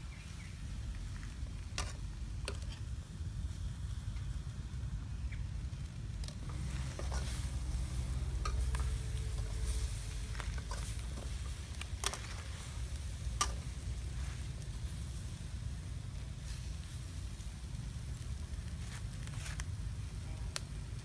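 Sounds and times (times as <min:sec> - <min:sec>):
low steady rumble: 0:00.0 - 0:21.0
metal spatula scraping: 0:06.4 - 0:14.6
fish sizzling in a wok: 0:06.4 - 0:21.0.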